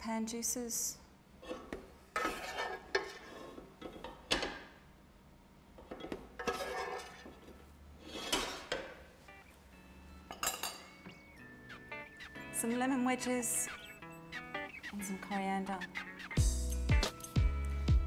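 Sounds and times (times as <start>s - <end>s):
metal spoon and pan clinking: 10.3s - 11.0s.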